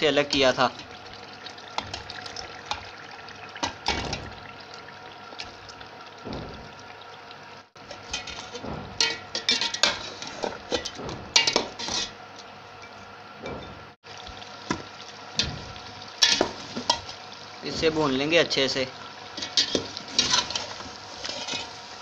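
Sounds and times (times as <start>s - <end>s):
meat sizzling in oil: 0.0s - 12.2s, 14.0s - 22.0s
metal spoon scraping pot: 7.9s - 12.2s, 19.4s - 21.8s.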